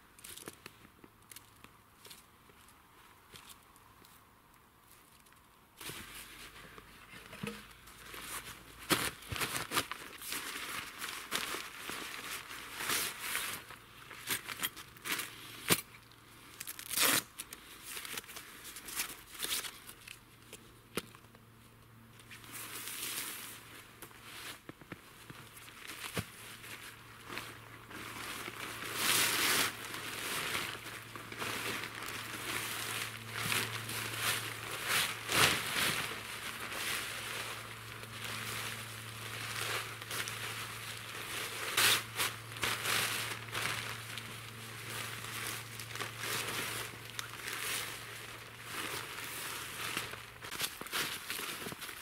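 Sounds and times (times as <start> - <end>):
tarp rustling and crinkling: 5.8 - 15.9, 16.6 - 20.2, 22.2 - 52.0.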